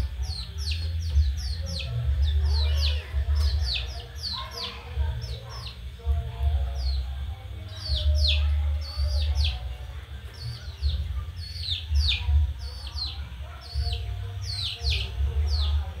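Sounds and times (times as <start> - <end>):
chicks and ducklings peeping: 0.0 - 16.0
steady low hum: 0.0 - 16.0.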